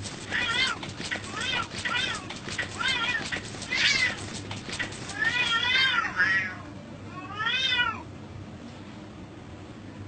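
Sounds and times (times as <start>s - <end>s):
cats fighting: 0.0s - 6.6s
cat yowling: 0.2s - 8.0s.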